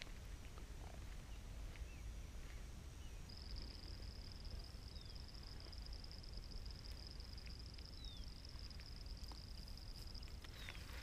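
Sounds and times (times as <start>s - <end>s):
faint bird chirps: 0.8s - 6.4s, 7.4s - 8.4s, 9.0s - 11.0s
insects trilling: 3.0s - 11.0s.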